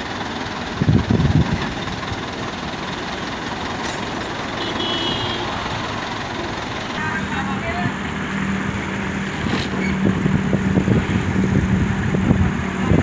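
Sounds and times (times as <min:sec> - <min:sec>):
diesel engines running: 0:00.0 - 0:13.0
loud low rumbling: 0:06.6 - 0:13.0.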